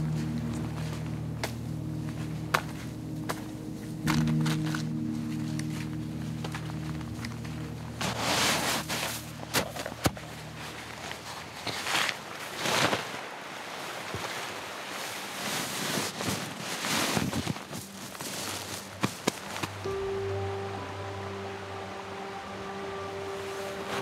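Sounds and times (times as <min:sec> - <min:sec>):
low music: 0:00.0 - 0:12.1, 0:17.8 - 0:24.0
tent fabric rustling and flapping: 0:00.0 - 0:24.0.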